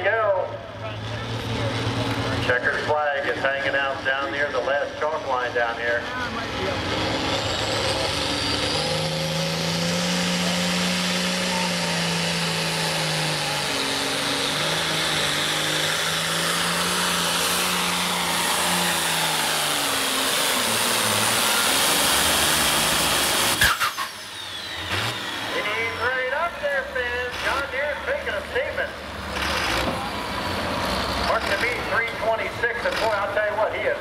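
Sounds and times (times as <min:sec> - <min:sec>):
tractor diesel engine roaring: 0:00.0 - 0:34.0.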